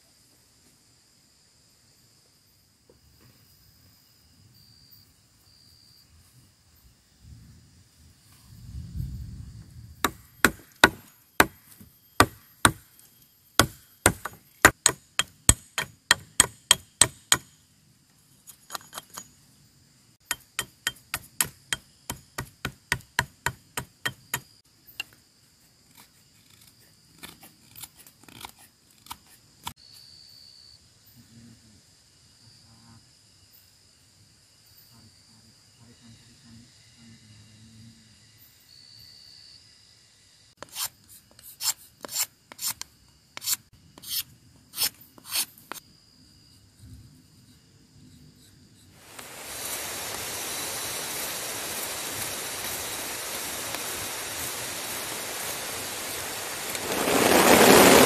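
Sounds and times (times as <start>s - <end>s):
axe chopping wood: 10.0s - 12.8s, 13.6s - 17.6s, 20.2s - 24.5s.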